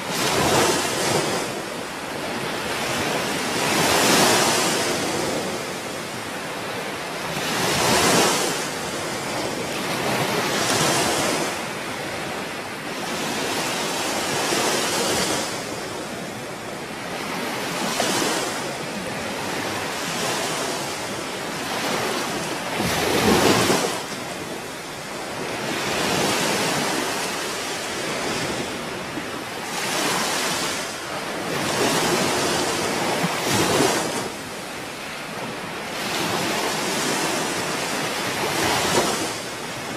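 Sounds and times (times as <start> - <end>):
surf washing on shore: 0.0 - 39.9.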